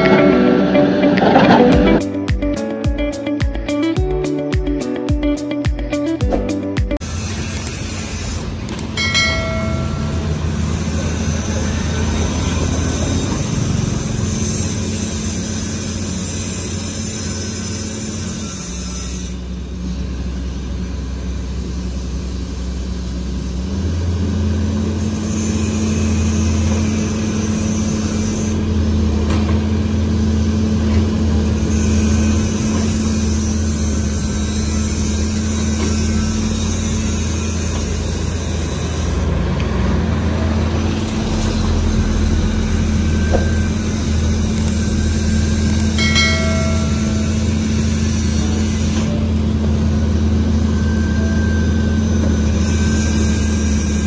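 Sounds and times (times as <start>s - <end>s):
brief high whine: 0.0s - 2.0s, 41.3s - 49.3s
excavator diesel engine running: 0.0s - 5.4s, 6.2s - 54.0s.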